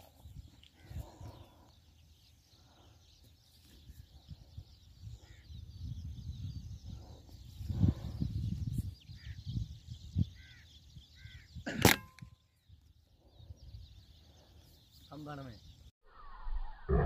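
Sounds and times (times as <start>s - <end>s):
faint bird chirps: 0.0s - 17.0s
wind rumbling: 4.2s - 11.4s.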